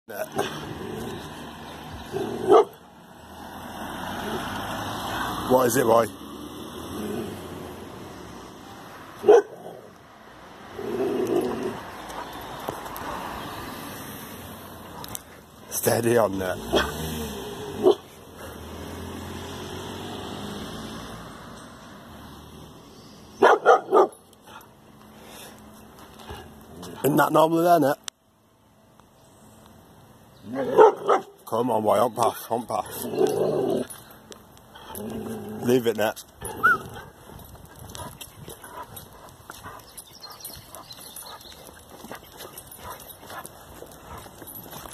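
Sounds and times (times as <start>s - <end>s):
dog barking: 2.4s - 2.8s, 9.2s - 9.7s, 17.8s - 18.1s, 23.4s - 24.2s, 30.5s - 31.4s
walking footsteps on tarmac: 10.8s - 17.1s, 23.4s - 28.1s, 30.9s - 44.9s.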